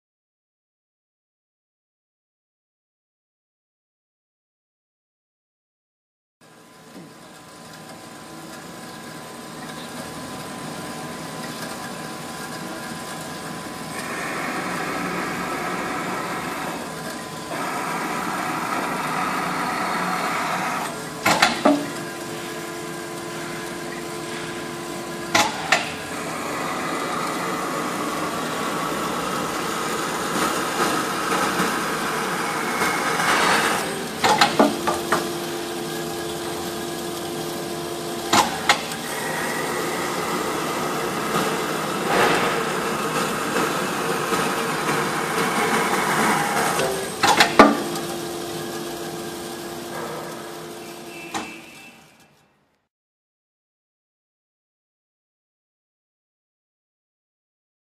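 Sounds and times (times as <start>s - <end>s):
low machine hum: 6.4s - 52.2s
machine clanking: 11.4s - 35.4s, 38.2s - 52.3s
band saw cutting wood: 23.4s - 51.8s.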